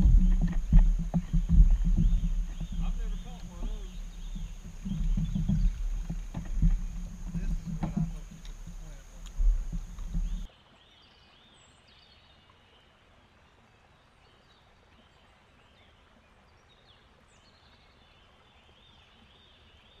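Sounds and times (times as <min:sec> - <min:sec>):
birds chirping: 0:00.0 - 0:10.5
boat handling noise: 0:00.0 - 0:10.5.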